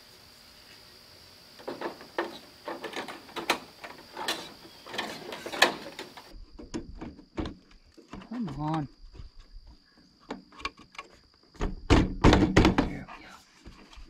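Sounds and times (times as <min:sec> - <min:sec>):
sharp clicks and knocks: 0:01.6 - 0:08.8.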